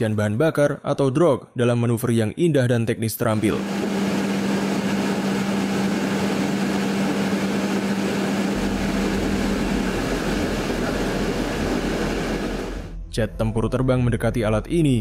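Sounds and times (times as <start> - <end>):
steady low hum: 3.4 - 12.9
aircraft cabin rushing noise: 3.5 - 12.9
deep rumble: 3.8 - 13.6.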